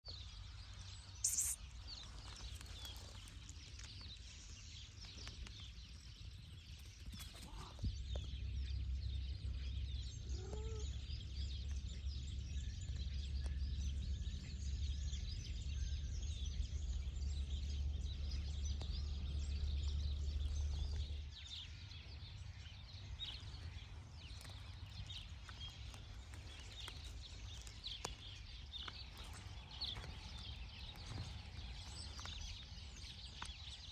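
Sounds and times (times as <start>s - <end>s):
small birds chirping: 0.0s - 33.9s.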